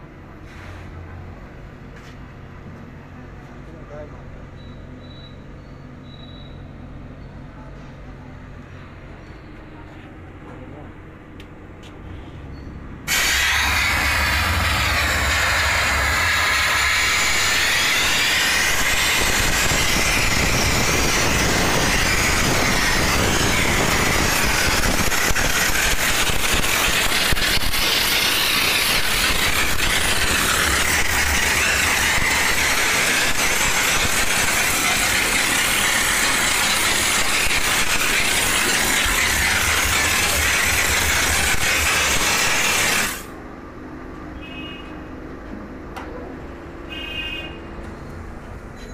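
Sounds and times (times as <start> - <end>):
low rumble: 13.1 - 17.5
steam jet hissing: 13.1 - 43.4.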